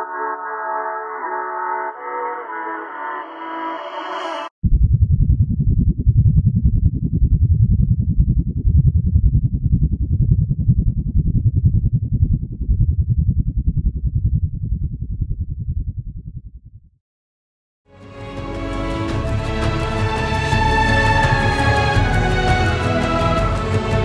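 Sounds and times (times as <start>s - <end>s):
fluttering low rumble: 4.6s - 17.0s.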